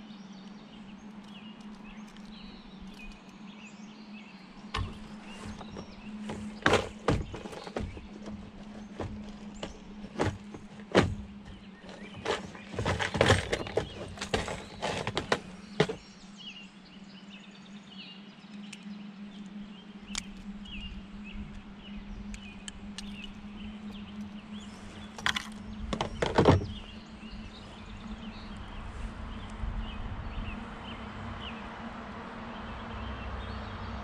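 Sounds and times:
bird chirping: 0:00.0 - 0:31.6
fishing gear clattering in kayak: 0:04.6 - 0:16.2, 0:23.9 - 0:28.1.

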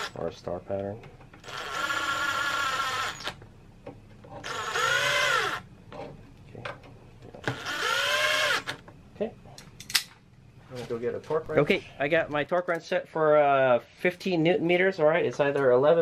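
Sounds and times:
impact driver running bolts: 0:07.4 - 0:08.8.

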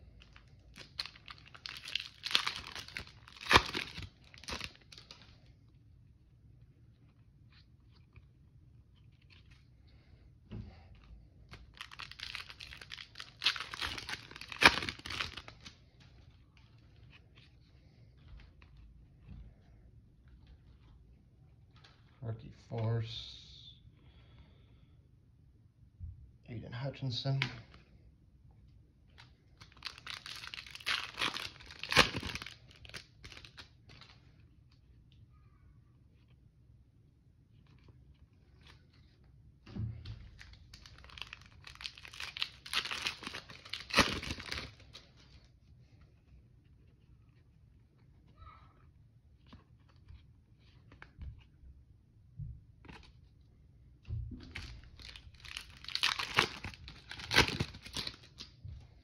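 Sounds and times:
cards rustling and clicking: 0:00.1 - 0:05.6, 0:06.7 - 0:22.2, 0:29.1 - 0:35.2, 0:37.5 - 0:51.7, 0:52.8 - 0:53.4, 0:54.5 - 0:59.0
foil pack tearing and crinkling: 0:00.8 - 0:05.2, 0:11.6 - 0:15.7, 0:29.7 - 0:33.6, 0:40.8 - 0:45.0, 0:54.6 - 0:58.4.

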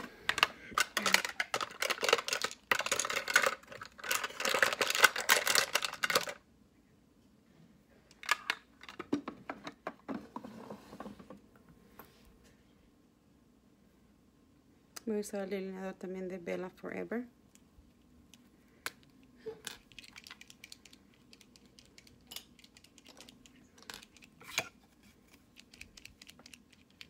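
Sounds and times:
plastic makeup items clicking: 0:00.0 - 0:06.4, 0:19.7 - 0:24.4, 0:25.4 - 0:27.0.

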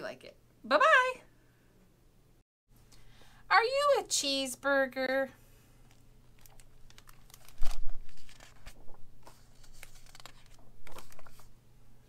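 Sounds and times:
book pages turning: 0:05.9 - 0:11.5
paper and cover handling: 0:05.9 - 0:11.5.

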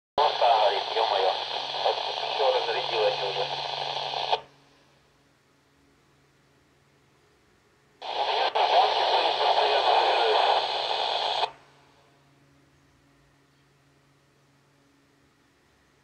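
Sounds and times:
hissing radio signal burst: 0:00.2 - 0:04.5, 0:08.0 - 0:11.6.

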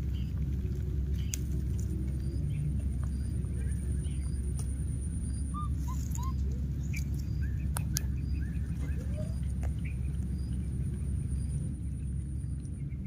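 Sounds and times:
steady low rumble: 0:00.0 - 0:13.0
short chirping animal calls: 0:05.2 - 0:07.7.

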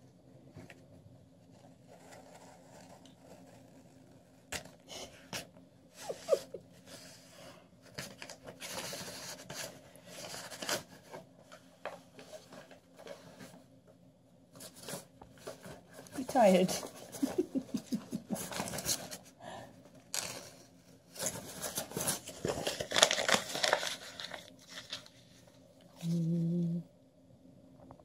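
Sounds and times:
paper rustling and scraping: 0:01.5 - 0:05.5, 0:07.8 - 0:13.6, 0:14.6 - 0:19.3, 0:20.1 - 0:26.1.

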